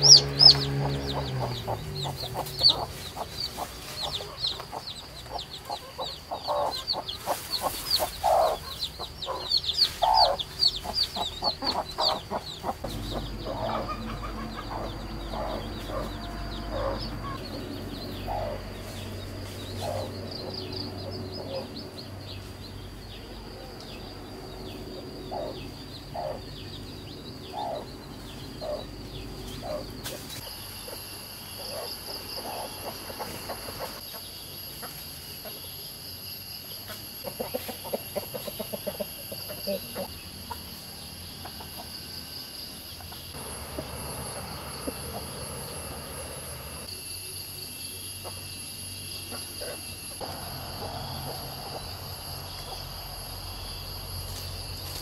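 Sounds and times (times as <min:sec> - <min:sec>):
chick cheeping: 0:00.0 - 0:19.0, 0:24.9 - 0:26.8, 0:27.4 - 0:27.9, 0:28.6 - 0:35.6, 0:37.2 - 0:40.6
chickens clucking: 0:00.0 - 0:23.0, 0:24.6 - 0:35.7, 0:36.9 - 0:46.9, 0:49.2 - 0:53.1
steady high-pitched hum: 0:42.2 - 0:55.0.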